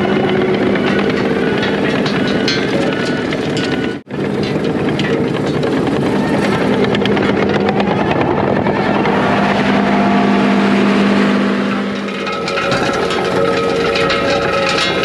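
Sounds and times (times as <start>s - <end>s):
power rake drum spinning in dirt: 0.0s - 15.0s
skid steer engine running: 0.0s - 15.0s
stones rattling and ticking: 12.2s - 15.0s.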